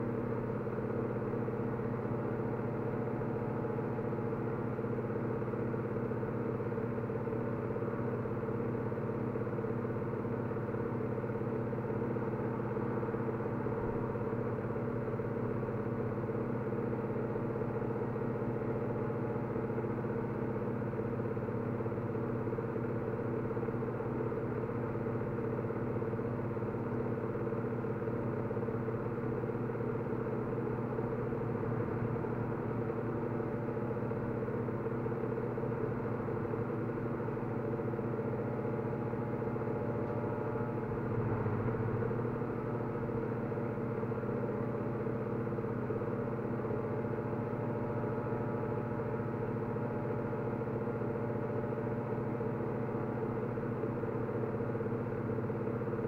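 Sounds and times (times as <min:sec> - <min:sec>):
low mechanical hum: 0:00.0 - 0:56.0.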